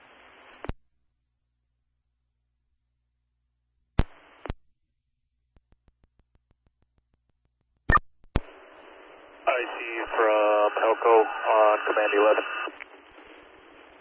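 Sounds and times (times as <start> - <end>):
radio static hiss: 0.0 - 0.8, 4.0 - 4.6, 8.4 - 14.0
radio click: 4.0 - 4.6, 7.9 - 8.6, 9.6 - 13.0.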